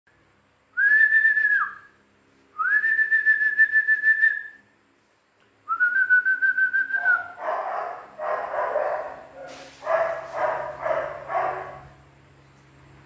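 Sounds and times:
person whistling: 0:00.8 - 0:02.0, 0:02.6 - 0:04.6, 0:05.7 - 0:07.2.

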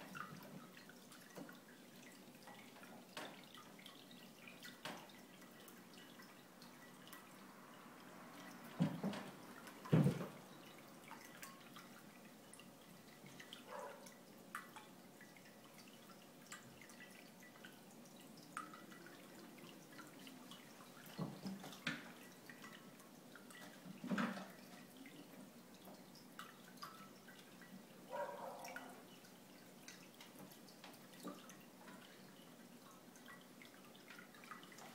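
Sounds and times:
cats thumping and knocking: 0:09.9 - 0:10.3.

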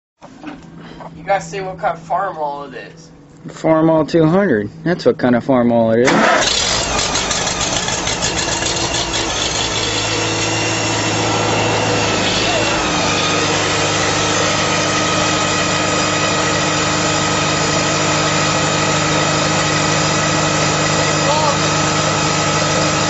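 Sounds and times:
tractor engine idling: 0:06.0 - 0:23.0.

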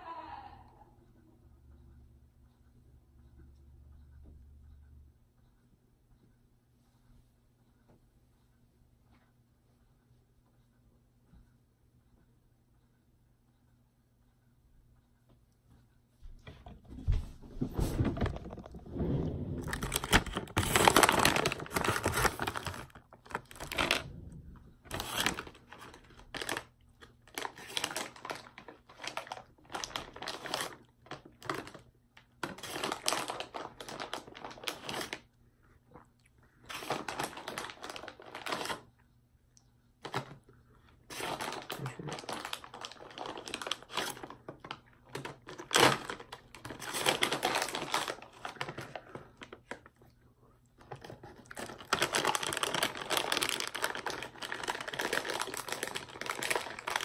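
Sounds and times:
plastic candy bag crinkling: 0:18.0 - 0:35.4, 0:36.6 - 0:39.0, 0:40.0 - 0:50.1, 0:50.8 - 0:57.0.

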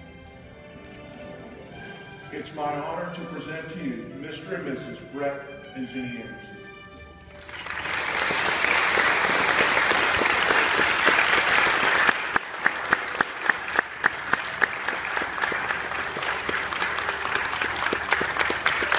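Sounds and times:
congregation applauding: 0:07.3 - 0:18.9
loud close claps: 0:07.4 - 0:18.9.

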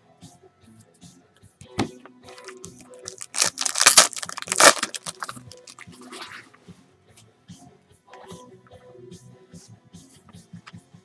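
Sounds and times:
foil wrapper crinkling and tearing: 0:02.4 - 0:05.8.

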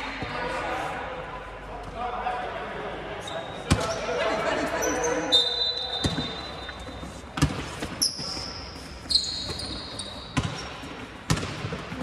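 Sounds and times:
high-pitched shoe squeaks: 0:04.8 - 0:07.3, 0:08.0 - 0:10.7
basketball thumping on court: 0:11.3 - 0:11.8.

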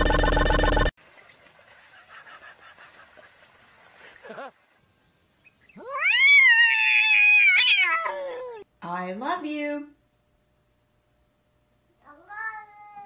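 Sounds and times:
faint water splashing: 0:01.0 - 0:04.8
cat yowling: 0:05.8 - 0:08.6, 0:12.1 - 0:13.0.

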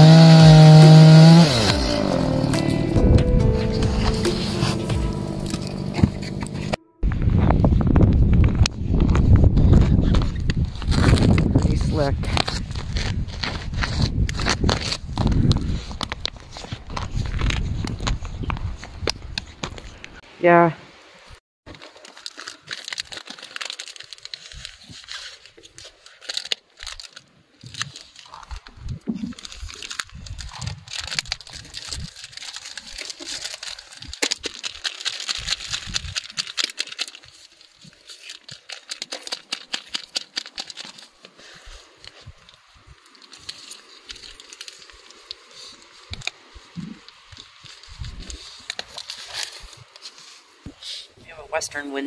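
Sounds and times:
plastic packaging crinkling and tearing: 0:09.8 - 0:18.4, 0:21.7 - 0:50.6.

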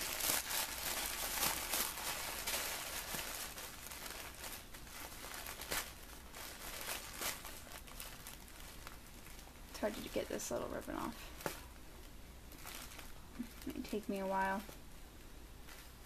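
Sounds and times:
wrapping paper crinkling: 0:00.0 - 0:14.9.

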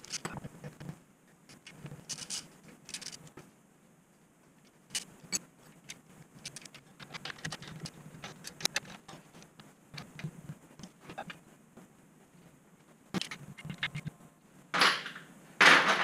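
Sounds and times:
metal tools clicking and rattling: 0:01.5 - 0:03.3.

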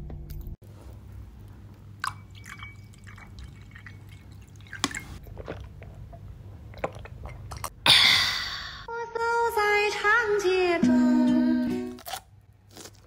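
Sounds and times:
liquid pouring into a glass: 0:02.0 - 0:05.2
sipping and swallowing: 0:02.0 - 0:07.8.

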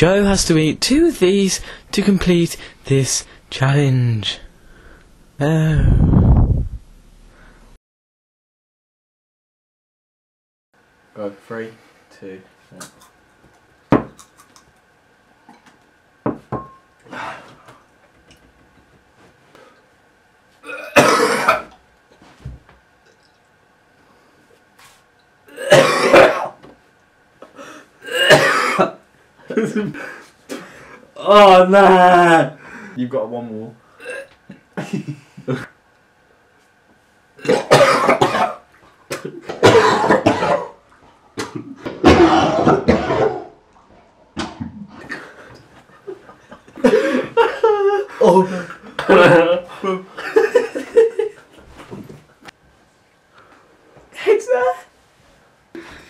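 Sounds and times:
man gagging and coughing: 0:20.6 - 0:21.7, 0:25.5 - 0:26.6, 0:28.0 - 0:29.0, 0:34.0 - 0:35.0, 0:37.4 - 0:38.6, 0:39.2 - 0:40.8, 0:42.0 - 0:43.5, 0:46.8 - 0:50.0.

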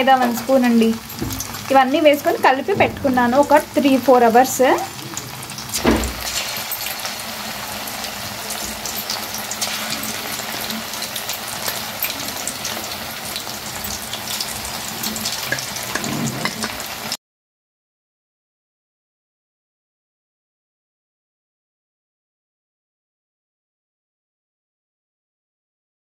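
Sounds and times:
chicken deep-frying in oil: 0:00.0 - 0:17.2
low thud: 0:02.7 - 0:03.5.

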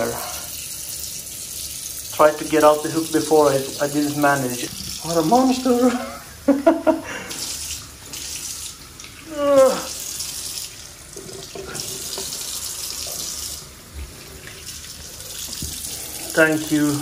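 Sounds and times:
short falling voice sound: 0:09.3 - 0:10.0.

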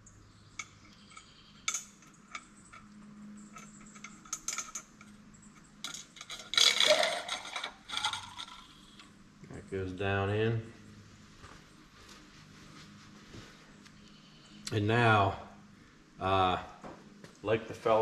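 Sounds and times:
light metal clicks and clinks: 0:00.5 - 0:09.8
metal clattering rattle: 0:00.6 - 0:08.9.

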